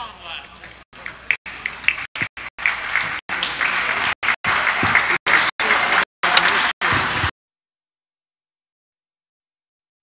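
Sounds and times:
audience applauding: 1.0s - 7.3s.

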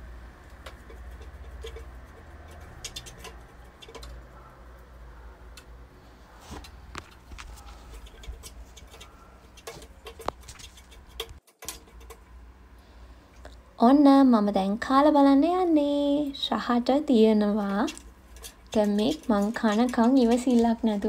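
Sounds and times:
spoon scraping a frying pan: 17.6s - 21.0s.

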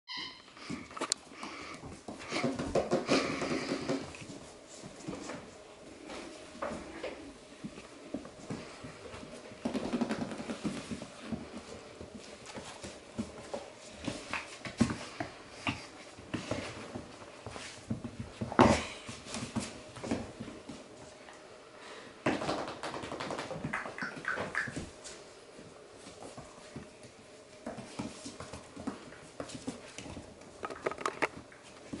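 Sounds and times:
puppies scuffling and playing: 0.6s - 21.4s, 22.2s - 32.0s.

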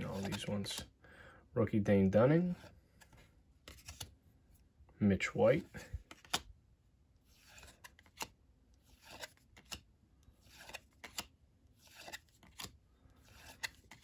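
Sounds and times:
cards sliding off a stack: 0.0s - 0.8s, 2.9s - 4.1s, 7.3s - 8.3s, 8.9s - 9.8s, 10.4s - 14.0s.

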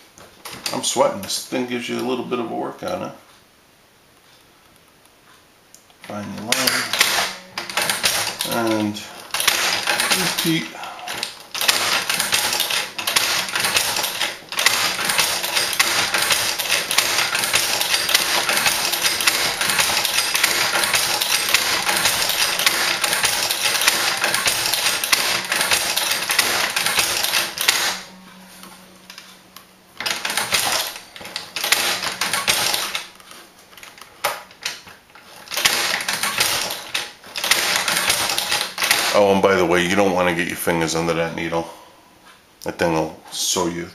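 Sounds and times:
leather stitcher clacking: 6.2s - 28.1s, 30.0s - 39.4s.

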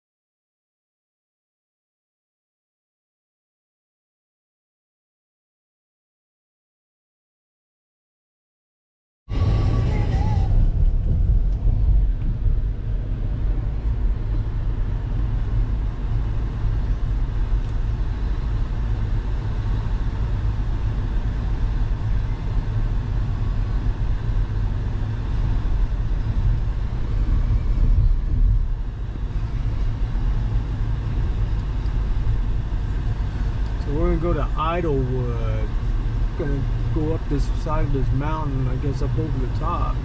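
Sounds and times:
car driving on highway: 9.3s - 40.0s.

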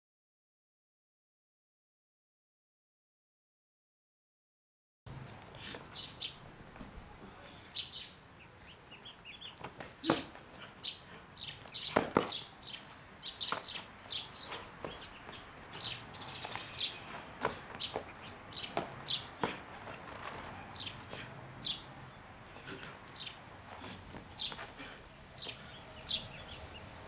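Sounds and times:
birds chirping: 5.4s - 27.0s.

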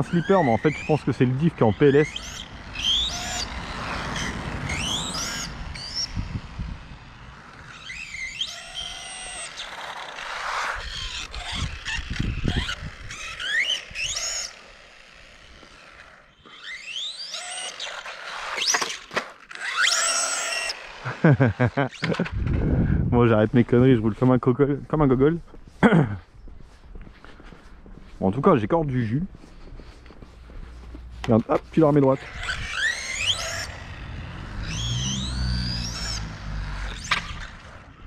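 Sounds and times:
electric motor whining: 0.0s - 23.1s, 29.8s - 38.0s
rough tyre and gear noise: 0.0s - 38.0s.

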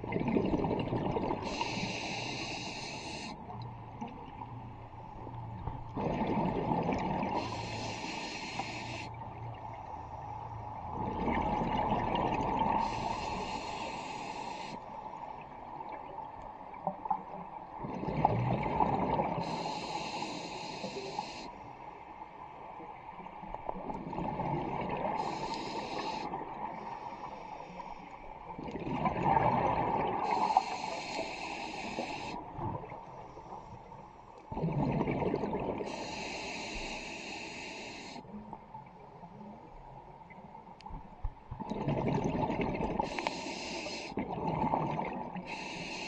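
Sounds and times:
bubbling exhale underwater: 0.0s - 1.8s, 5.9s - 7.6s, 17.8s - 19.6s, 28.6s - 30.7s, 34.5s - 36.2s, 41.6s - 43.2s, 44.1s - 45.7s
regulator hissing on inhale: 1.4s - 3.5s, 7.4s - 9.2s, 12.8s - 14.9s, 19.4s - 21.7s, 25.2s - 28.2s, 30.2s - 32.5s, 35.8s - 38.3s, 43.0s - 44.2s, 45.4s - 46.0s.

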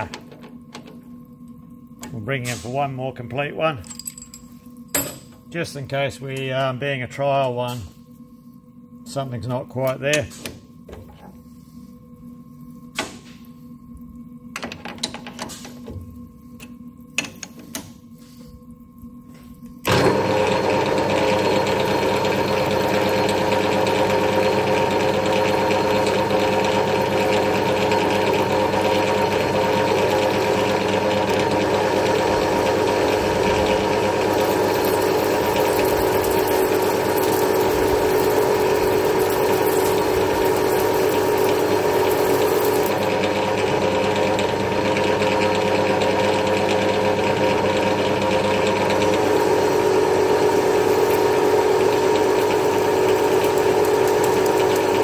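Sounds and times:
metal lathe humming: 19.8s - 55.0s.

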